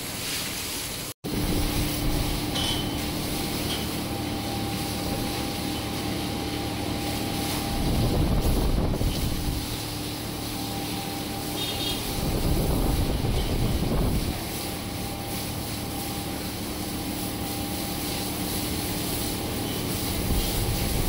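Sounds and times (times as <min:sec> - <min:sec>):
garden hose spraying water: 0:00.0 - 0:21.0
wind buffeting microphone: 0:07.7 - 0:09.6, 0:12.1 - 0:14.4.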